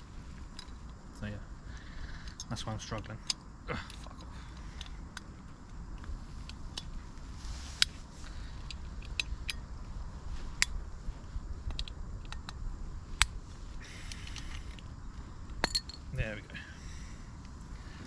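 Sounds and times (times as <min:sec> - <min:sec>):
small metallic clicks: 0:01.7 - 0:06.9, 0:07.8 - 0:09.7, 0:11.6 - 0:12.6, 0:14.0 - 0:16.0.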